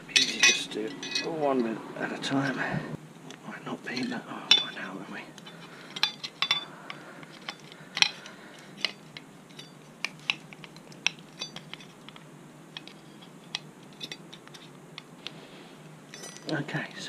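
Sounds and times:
metal plates clicking and clinking: 0.2s - 1.3s, 5.4s - 14.7s, 16.1s - 16.5s.

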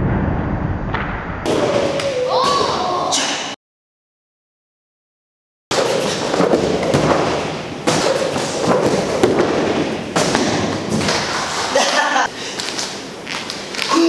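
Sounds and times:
thuds on padded gym mats: 5.8s - 11.3s.

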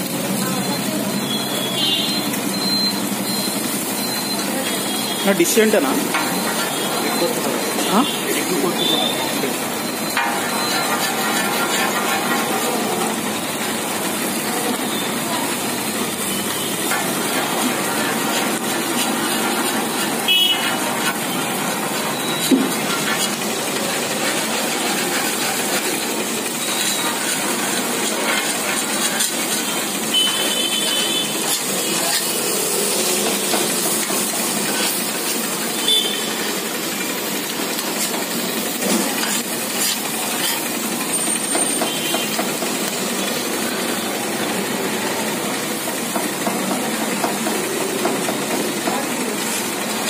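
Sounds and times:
food sizzling on griddle: 0.0s - 50.0s
street traffic: 0.0s - 50.0s
metal spatula scraping and chopping: 9.8s - 13.8s, 16.3s - 35.4s, 37.7s - 40.9s.

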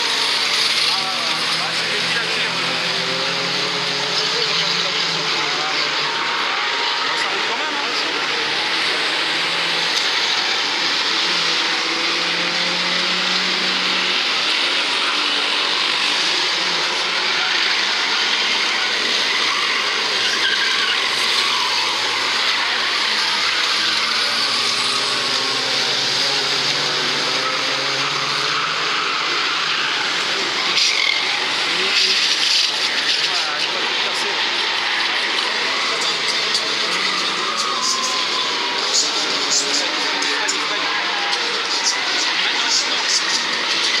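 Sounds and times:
racing car engines: 0.0s - 44.0s.

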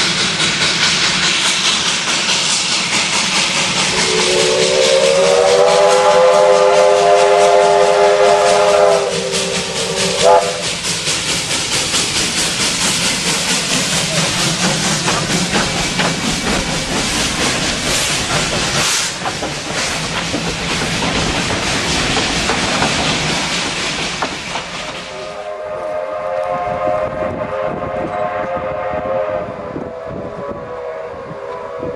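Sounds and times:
train wheel clicks: 0.0s - 26.5s
steam hissing: 0.0s - 29.5s
rapid steam exhaust beats: 0.0s - 29.9s
steam locomotive chime whistle: 3.9s - 10.7s, 25.1s - 31.9s.

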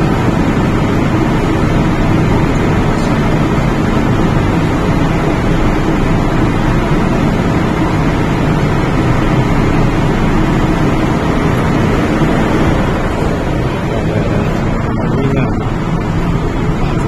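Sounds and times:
train car rumble: 0.0s - 17.0s.

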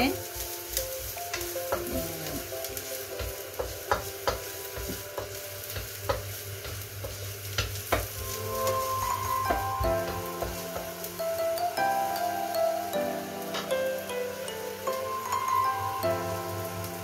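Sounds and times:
garlic sizzling in oil: 0.0s - 17.0s
spatula tapping and scraping pan: 1.3s - 2.1s, 2.7s - 8.8s, 9.4s - 11.1s.

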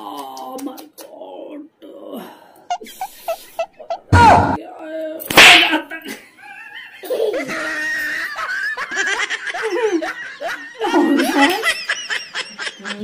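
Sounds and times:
man and woman laughing: 2.7s - 4.1s, 6.0s - 13.0s.

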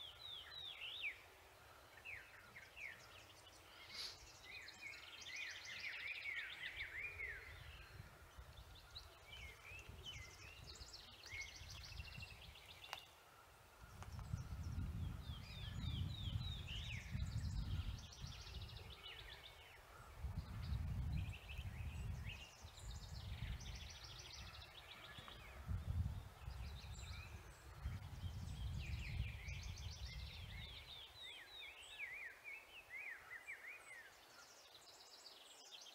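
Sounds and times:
songbirds singing: 0.0s - 35.9s
wind rumble on microphone: 5.9s - 12.7s, 13.7s - 31.7s.

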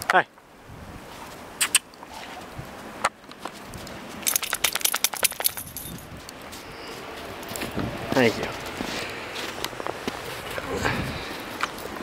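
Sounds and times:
dog collar jingling: 4.2s - 6.1s.

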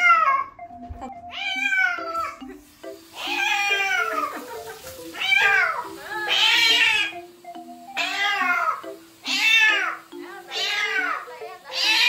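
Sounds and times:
soft background music: 0.0s - 12.0s
cat yowling: 1.3s - 2.1s, 3.2s - 4.3s, 5.2s - 7.2s, 8.0s - 12.0s.

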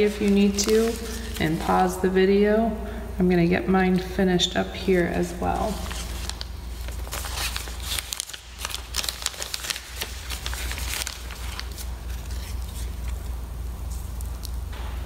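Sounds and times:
plastic bag crinkling: 0.0s - 2.2s, 5.0s - 14.7s
steady low hum: 0.0s - 15.0s.

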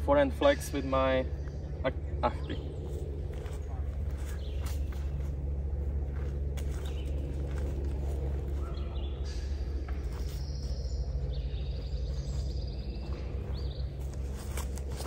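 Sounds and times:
steady low rumble: 0.0s - 15.0s
small birds chirping: 0.2s - 15.0s.

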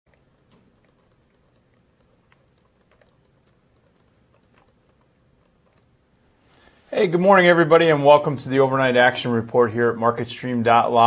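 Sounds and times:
keyboard typing clicks: 0.1s - 5.9s.

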